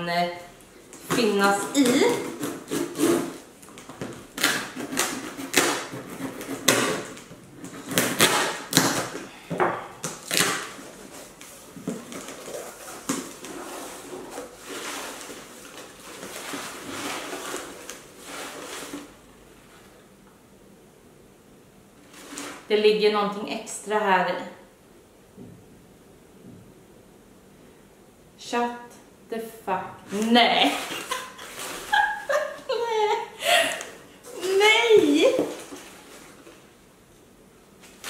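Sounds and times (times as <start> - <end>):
packing tape ripping: 1.0 - 9.3, 10.0 - 19.1
packing paper rustling: 10.0 - 19.2, 30.1 - 33.7, 34.3 - 36.7.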